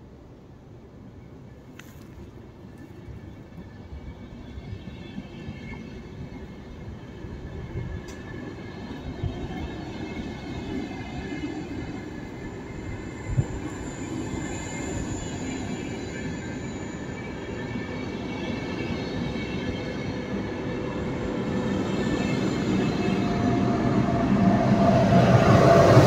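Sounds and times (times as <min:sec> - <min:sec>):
train rolling along track: 0:00.9 - 0:26.0.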